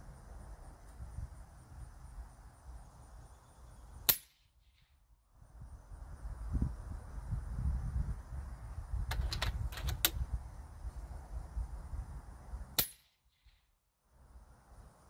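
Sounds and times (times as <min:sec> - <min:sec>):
air rifle shot: 0:04.0 - 0:04.5
sharp clicks: 0:09.0 - 0:10.2.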